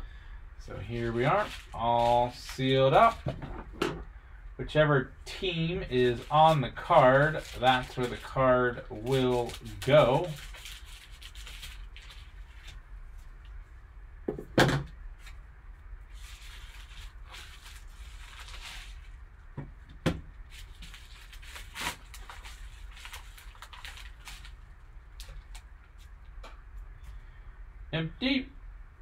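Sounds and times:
card pack envelope crinkling: 0.9s - 3.2s, 5.8s - 12.8s, 16.1s - 19.2s, 20.4s - 25.7s.

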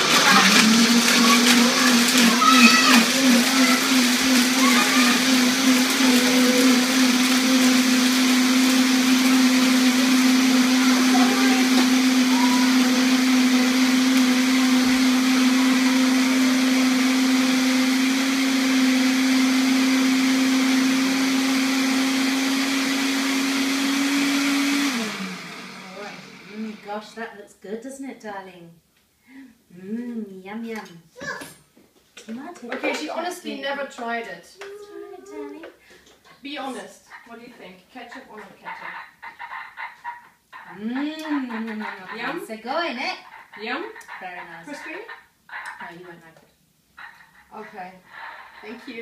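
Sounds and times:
blender motor running: 0.0s - 27.2s.

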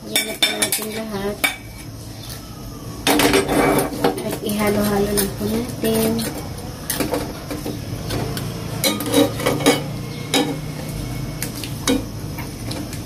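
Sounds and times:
metal spatula scraping a pan: 8.4s - 11.5s.

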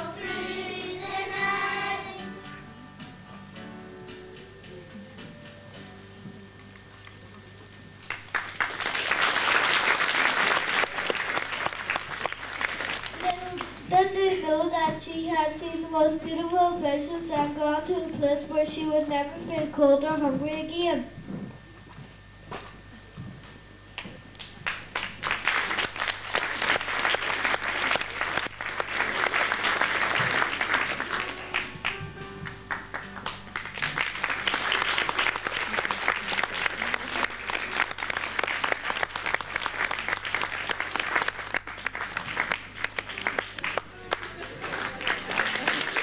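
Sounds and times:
audience applauding: 8.0s - 13.9s, 24.3s - 46.0s.

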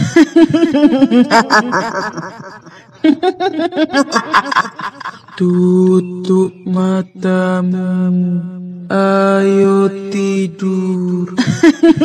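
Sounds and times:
woman cackling laugh: 0.0s - 5.4s, 11.4s - 12.0s.

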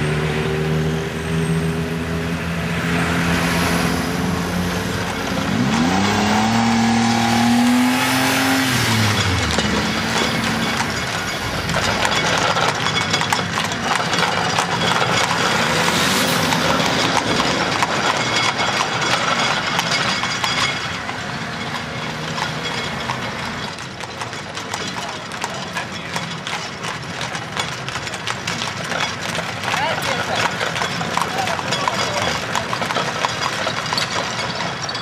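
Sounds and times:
hooves clip-clopping on asphalt: 8.6s - 35.0s.

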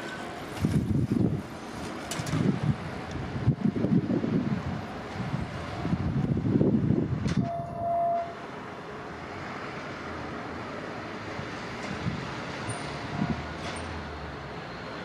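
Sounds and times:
distant diesel engine and wheels: 0.0s - 15.0s
truck rumble: 0.0s - 15.0s
train horn blast: 7.4s - 8.4s.

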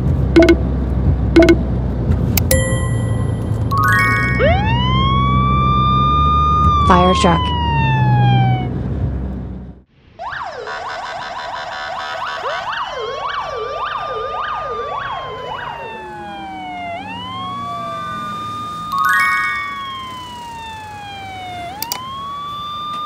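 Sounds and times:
siren tone falling in pitch: 0.4s - 0.6s, 1.4s - 1.6s, 2.6s - 8.7s, 10.2s - 23.0s
fire engine sirens wailing: 3.8s - 8.9s, 10.2s - 23.0s.

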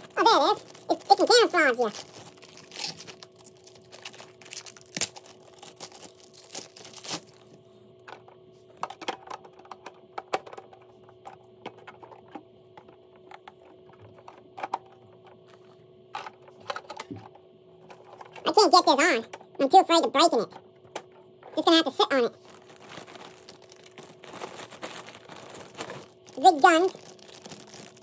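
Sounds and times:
plastic bag crinkling: 0.0s - 7.6s, 22.2s - 28.0s.

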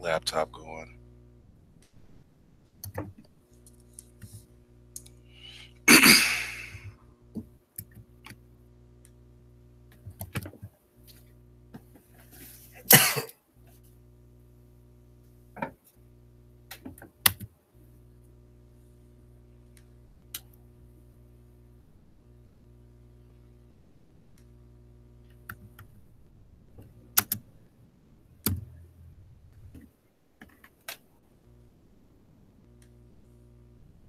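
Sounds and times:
low electrical hum: 0.0s - 34.0s
person coughing: 5.9s - 6.9s, 12.9s - 13.3s.

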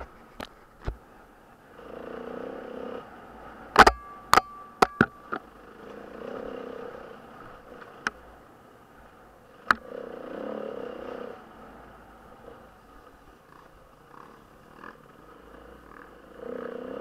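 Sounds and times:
motorcycle engine revving: 1.7s - 8.4s, 9.5s - 17.0s.

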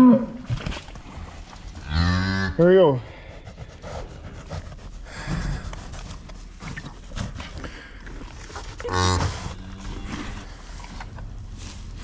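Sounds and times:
cow mooing: 0.0s - 0.4s.

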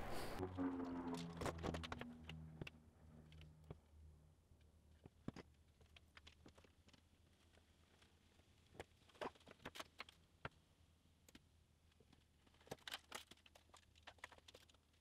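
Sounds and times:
low hum: 0.0s - 4.9s.

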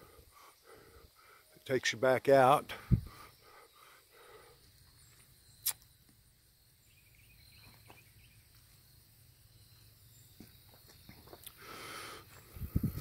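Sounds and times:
faint high chirping: 2.4s - 11.6s
sharp click: 5.6s - 5.9s.

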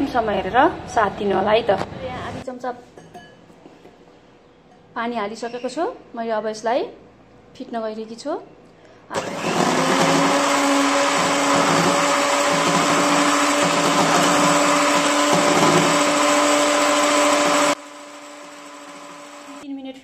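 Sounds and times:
electric hand mixer whisking: 9.2s - 19.6s.

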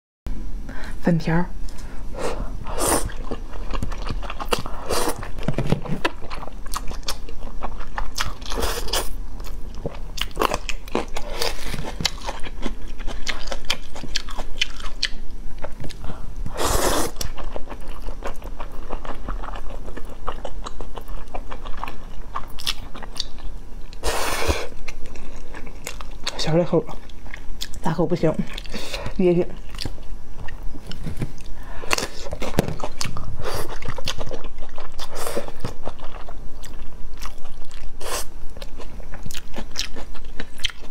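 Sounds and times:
person slurping noodles: 4.7s - 5.3s, 16.5s - 17.2s.

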